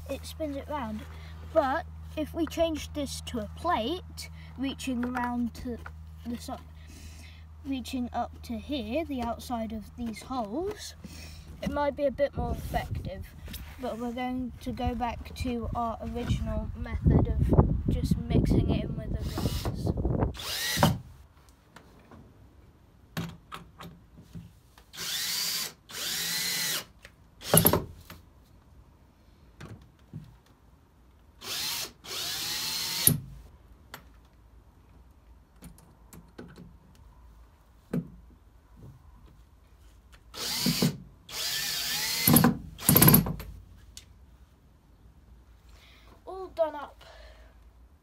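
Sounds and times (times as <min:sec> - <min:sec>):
cordless drill whining: 0:19.2 - 0:19.8, 0:20.4 - 0:21.0, 0:25.0 - 0:27.7, 0:31.4 - 0:33.2, 0:40.4 - 0:43.2.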